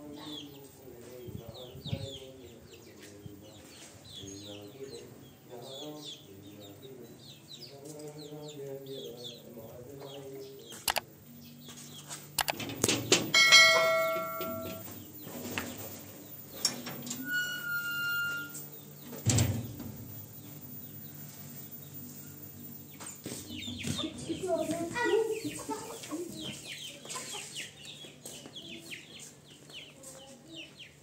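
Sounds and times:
small birds chirping: 0.0 - 12.6, 18.2 - 31.0
kitchenware clattering: 13.1 - 14.9
metallic ringing tones: 13.3 - 15.0, 16.4 - 18.9
hens clucking: 23.4 - 29.3.

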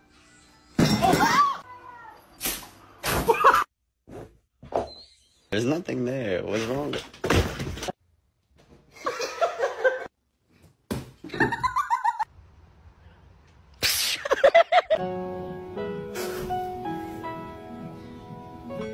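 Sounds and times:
music: 15.0 - 18.9.

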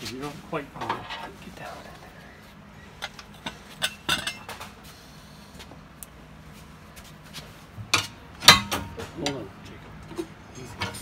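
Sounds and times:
tools clinking on metal rim: 3.0 - 4.6.

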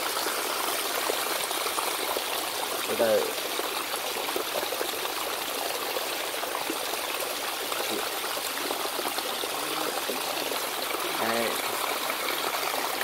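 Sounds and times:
water splashing over rocks: 0.0 - 13.0.

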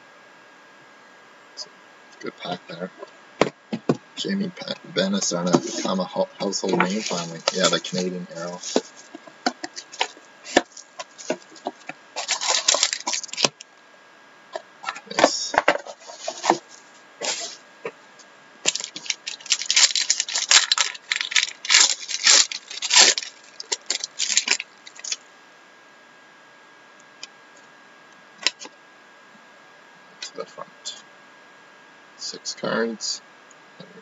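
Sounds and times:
pack wrapper crinkling: 5.7 - 13.7, 18.6 - 25.2
wrapper tearing: 6.6 - 9.1, 9.8 - 13.6, 18.6 - 25.2
packaging clacks: 6.6 - 13.6, 18.7 - 25.2.

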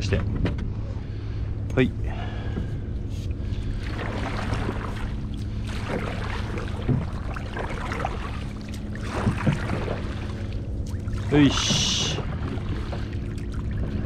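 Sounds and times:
low hum: 0.0 - 14.0
paddle splashing in water: 3.1 - 14.0.

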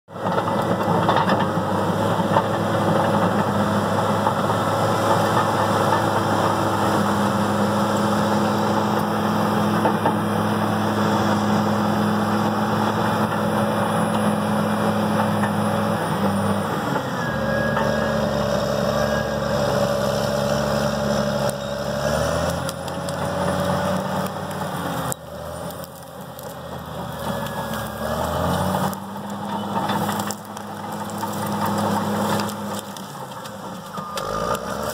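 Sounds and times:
bulldozer diesel engine running: 0.1 - 34.9.

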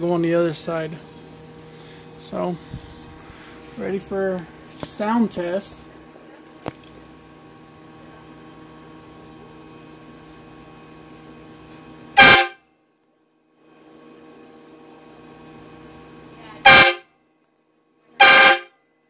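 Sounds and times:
train air horn blasts: 12.2 - 12.7, 16.6 - 17.1, 18.2 - 18.8.

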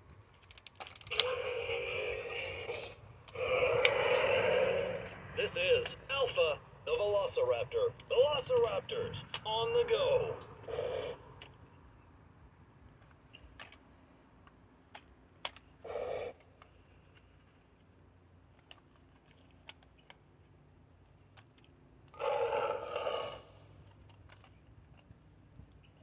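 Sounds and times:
plastic toy clicks and snaps: 0.4 - 1.4, 14.9 - 15.7.

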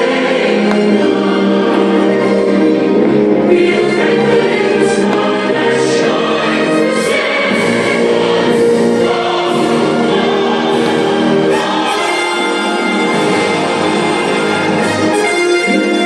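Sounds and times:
show music with choir singing: 0.0 - 16.0.

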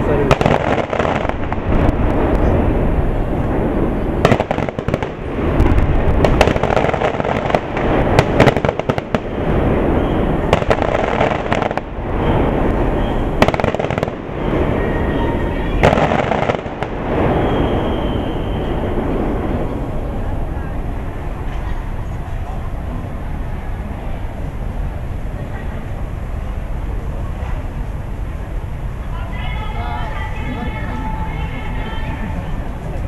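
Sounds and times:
fireworks bangs: 0.0 - 22.5
low rumble: 0.0 - 33.0.

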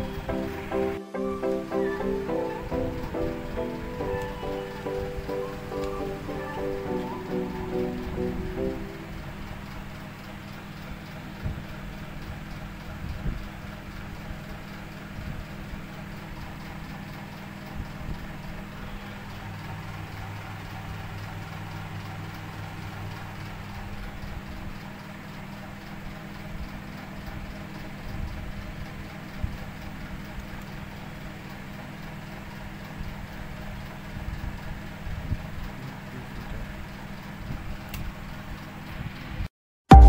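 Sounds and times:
low hum: 0.0 - 12.2.

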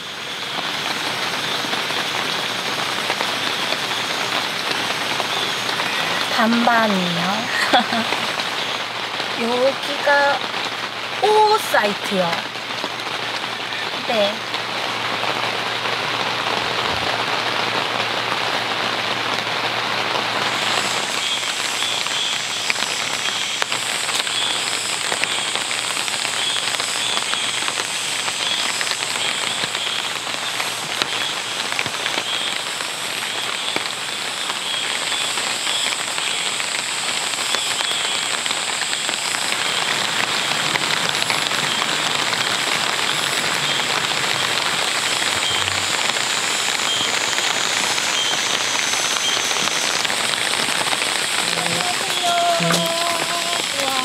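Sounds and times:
rain falling: 0.0 - 54.0
thin high whine: 43.0 - 54.0.

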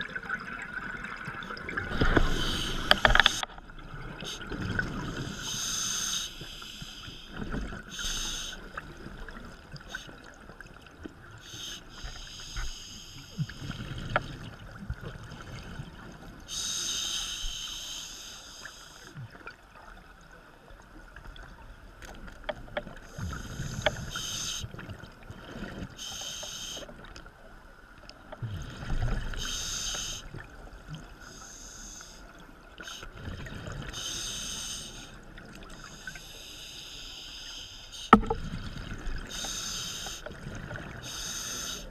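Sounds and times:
underwater bubbling bursts: 0.0 - 16.8, 37.9 - 41.9.

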